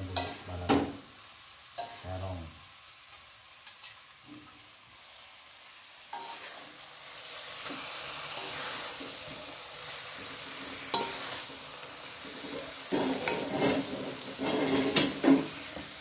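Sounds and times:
food sizzling: 0:00.0 - 0:16.0
spatula stirring and scraping: 0:06.1 - 0:06.8, 0:07.5 - 0:16.0.

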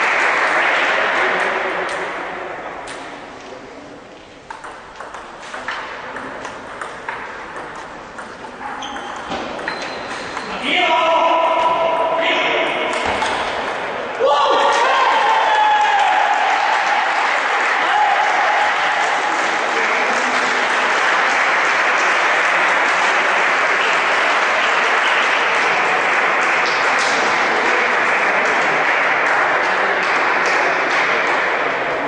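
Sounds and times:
crowd applauding: 0:00.0 - 0:02.0, 0:14.7 - 0:31.7.

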